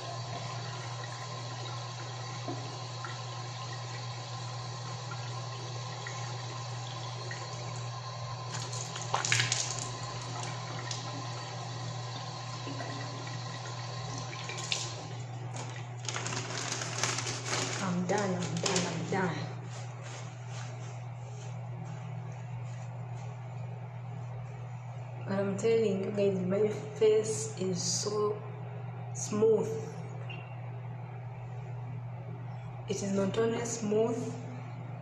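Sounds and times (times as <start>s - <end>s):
tap water running into sink: 0.0s - 17.0s.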